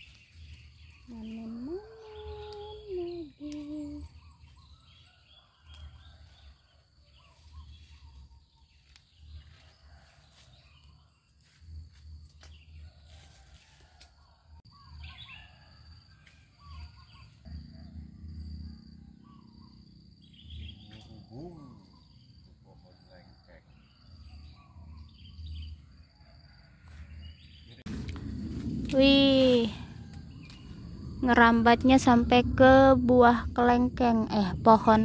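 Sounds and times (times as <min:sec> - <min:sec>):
high insect hum: 0:00.0 - 0:35.0
bird chirps: 0:16.6 - 0:25.9
low rumbles on microphone: 0:27.7 - 0:35.0.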